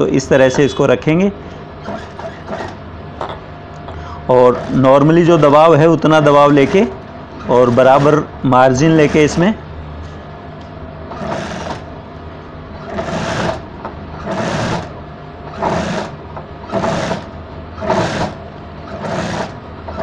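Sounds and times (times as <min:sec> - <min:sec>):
steady hum: 0:00.0 - 0:20.0
sewing machine stitching: 0:01.8 - 0:02.8, 0:06.4 - 0:08.2, 0:11.1 - 0:11.9, 0:12.8 - 0:20.0.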